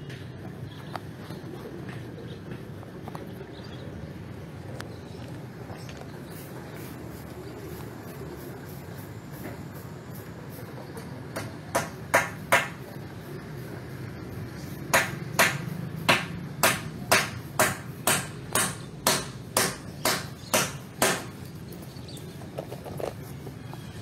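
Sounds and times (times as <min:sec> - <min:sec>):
hammer striking wood: 0:11.4 - 0:12.8, 0:14.9 - 0:21.4.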